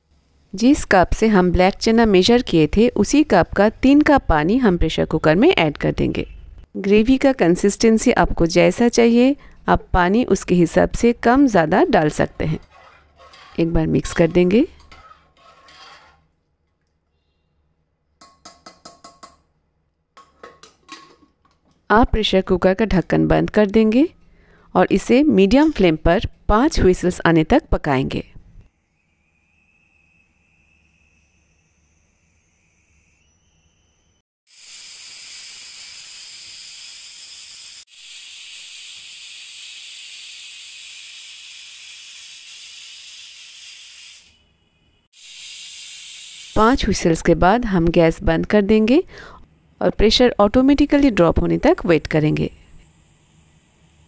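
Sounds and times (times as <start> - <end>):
pressure cooker steam hissing: 28.8 - 33.4, 34.5 - 44.4, 45.1 - 47.1.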